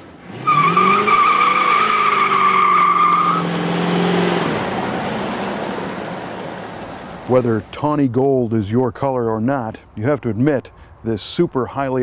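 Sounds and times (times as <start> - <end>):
car engine revving hard: 0.2 - 5.2
tyres squealing: 0.4 - 3.5.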